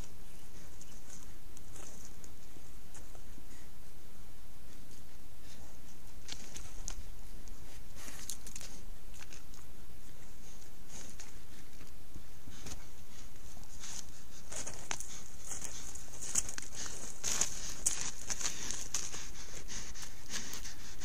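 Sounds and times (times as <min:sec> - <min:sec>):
animal scuffs and clicks: 0:06.2 - 0:20.8.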